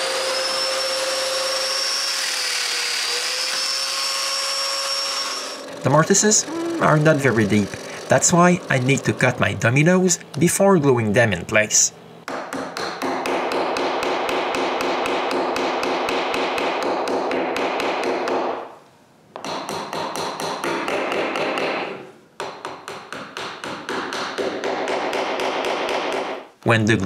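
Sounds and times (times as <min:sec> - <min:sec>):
small hammer tapping wood: 0:22.4 - 0:26.3.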